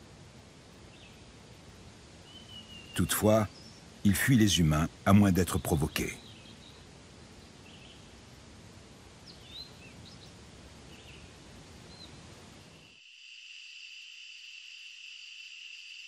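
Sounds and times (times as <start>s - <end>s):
steady outdoor hiss: 0.0s - 16.0s
high-pitched insect trill: 12.6s - 16.0s.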